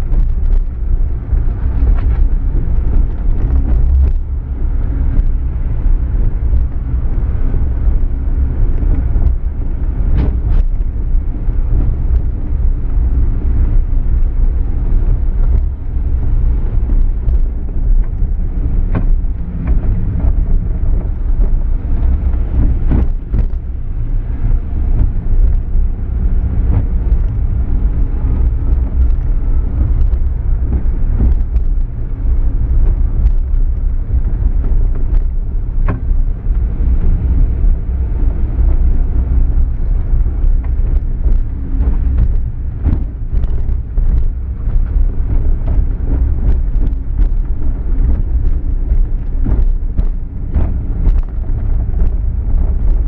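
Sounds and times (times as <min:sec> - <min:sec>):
car engine and road rumble: 0:00.0 - 0:53.0
knocks and rattles: 0:38.6 - 0:53.0.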